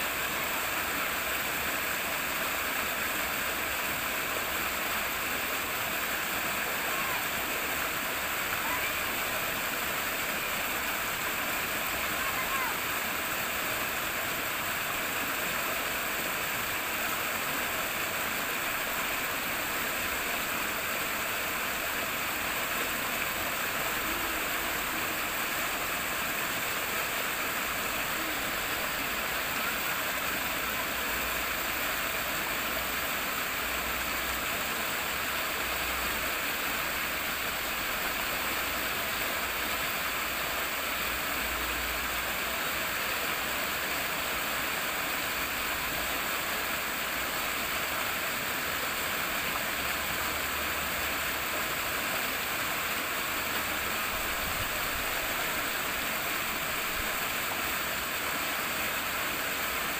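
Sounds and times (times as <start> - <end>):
water flowing: 0.0 - 59.9.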